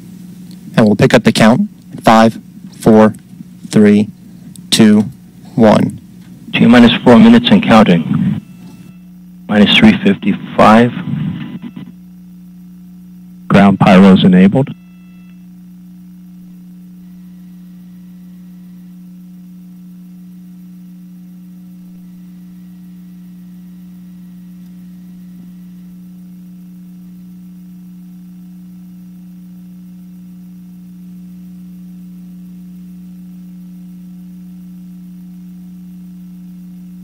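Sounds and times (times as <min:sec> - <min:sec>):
steady electrical hum: 0:00.0 - 0:37.0.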